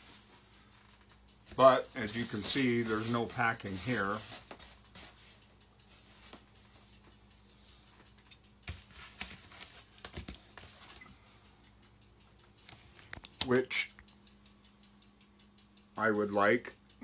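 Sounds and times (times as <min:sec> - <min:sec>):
cardboard rustling and scraping: 0:01.5 - 0:05.4.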